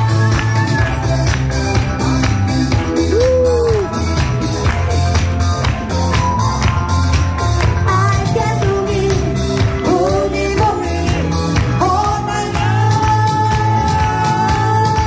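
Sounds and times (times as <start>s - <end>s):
pop song with steady beat: 0.0s - 15.0s
woman singing into microphone: 7.8s - 15.0s.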